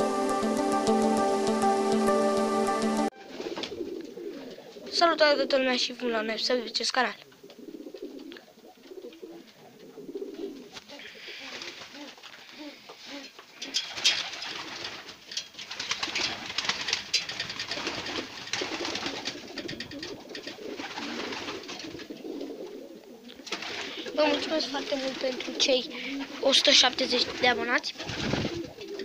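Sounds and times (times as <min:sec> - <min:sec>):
pigeons cooing: 0:03.3 - 0:06.4, 0:07.3 - 0:15.1, 0:15.9 - 0:29.0
rustling and scraping: 0:08.0 - 0:27.5.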